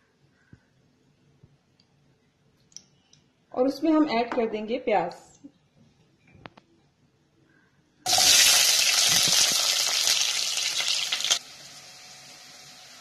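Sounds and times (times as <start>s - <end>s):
onions sizzling in hot oil: 8.1s - 13.0s.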